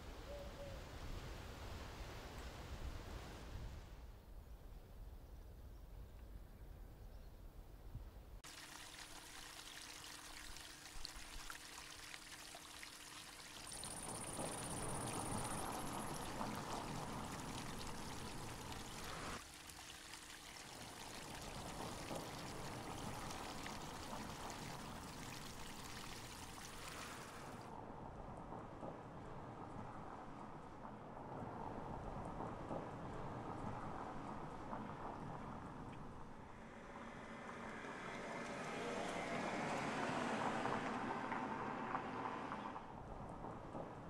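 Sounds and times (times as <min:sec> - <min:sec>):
water running and trickling: 0:08.4 - 0:27.7.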